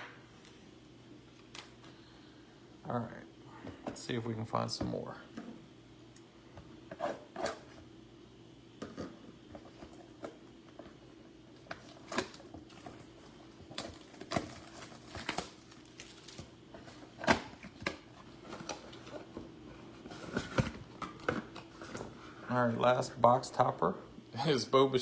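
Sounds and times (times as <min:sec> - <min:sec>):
faint steady hum: 0:00.0 - 0:25.0
cardboard and foil crinkling: 0:11.8 - 0:17.2.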